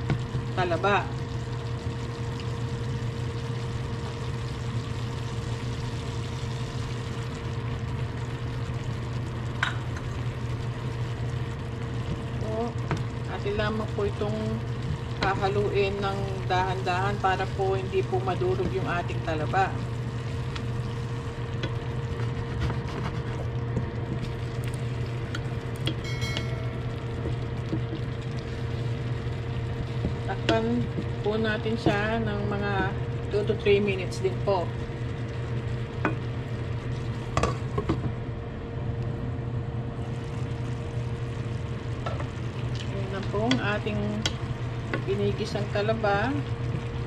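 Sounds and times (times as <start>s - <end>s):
food sizzling and crackling in pan: 0.0s - 38.2s, 40.0s - 47.0s
low mechanical hum: 0.0s - 47.0s
wooden spatula stirring: 21.6s - 24.7s.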